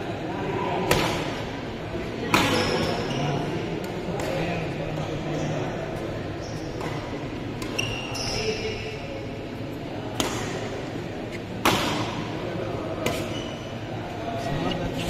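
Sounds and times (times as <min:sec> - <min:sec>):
racket striking shuttlecock: 0:00.8 - 0:01.3, 0:10.2 - 0:10.7, 0:11.6 - 0:12.3, 0:13.0 - 0:13.3
shoe squeak: 0:02.4 - 0:03.4, 0:06.4 - 0:06.8, 0:07.6 - 0:09.0, 0:13.1 - 0:13.9.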